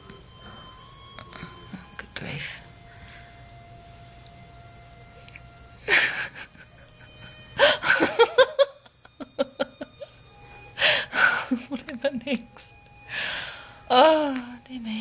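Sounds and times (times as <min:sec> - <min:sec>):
woman laughing: 0:05.8 - 0:10.2, 0:10.8 - 0:12.7.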